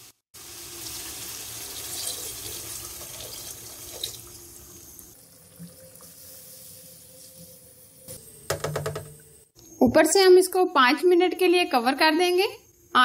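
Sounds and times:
water poured into hot oil sizzling: 0.0s - 8.0s.

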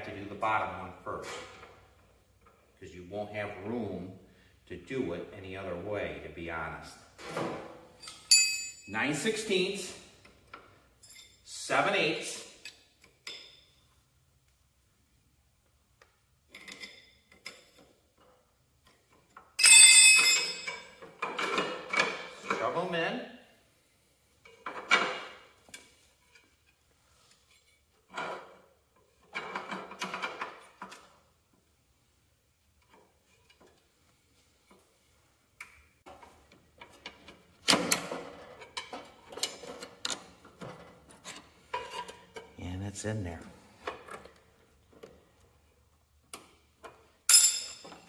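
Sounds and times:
wrenches clinking on metal: 8.0s - 8.9s, 11.0s - 11.6s, 16.5s - 17.9s, 18.8s - 22.8s, 36.1s - 42.6s, 46.8s - 48.0s.

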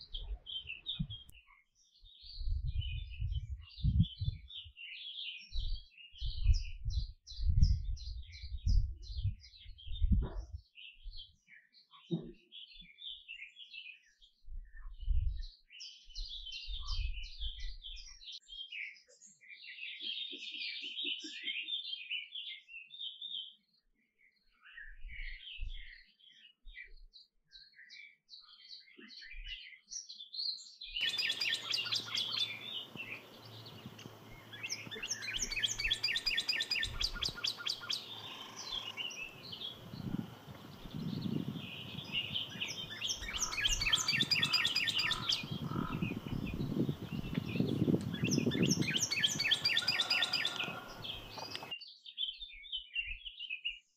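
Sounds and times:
canary singing: 31.0s - 51.7s.

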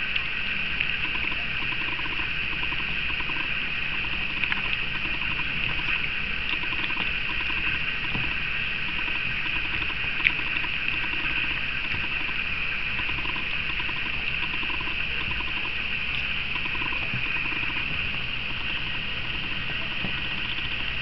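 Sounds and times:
steady high hiss: 0.0s - 21.0s.

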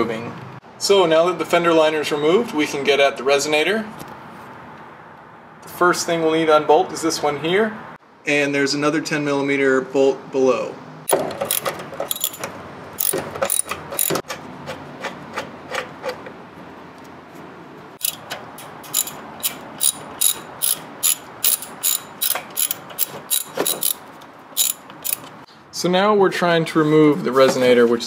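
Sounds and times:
socket ratchet clicking: 11.1s - 14.2s, 18.0s - 24.0s, 24.6s - 25.4s.

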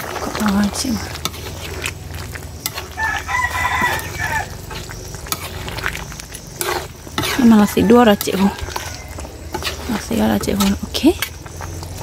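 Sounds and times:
metal ladle stirring in wok: 0.0s - 12.0s
rooster crowing: 2.8s - 4.7s, 7.4s - 9.7s.

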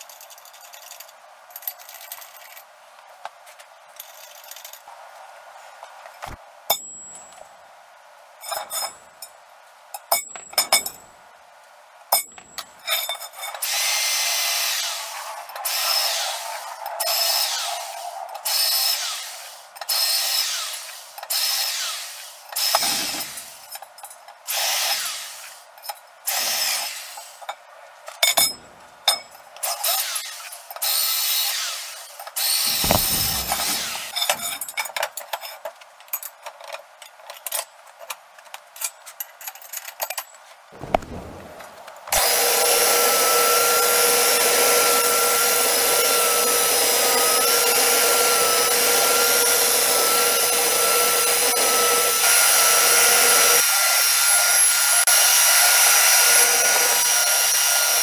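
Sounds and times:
power drill boring through steel: 13.6s - 23.6s, 24.5s - 25.6s, 29.8s - 34.2s, 42.2s - 58.0s.

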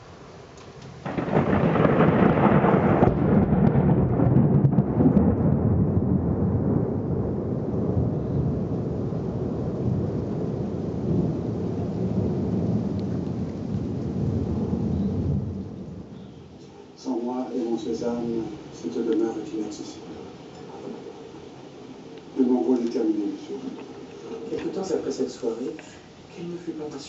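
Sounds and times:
thunder crack and rumble: 1.0s - 16.3s.

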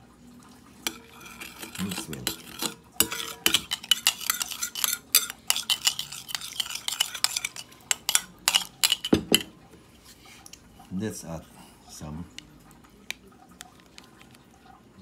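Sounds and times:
spoon clinking and scraping bowl: 0.8s - 9.6s.

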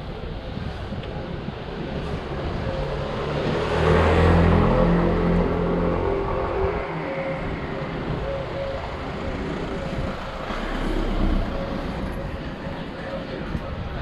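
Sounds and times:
motor vehicle engine hum: 0.0s - 14.0s
steady rushing noise: 0.0s - 14.0s.

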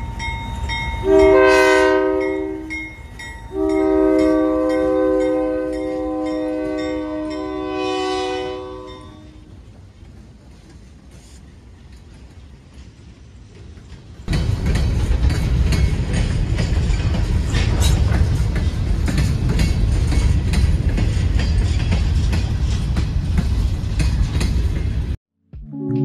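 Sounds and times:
freight train rumbling past: 0.0s - 25.2s
train wheels clicking over rail joints: 9.4s - 25.2s.

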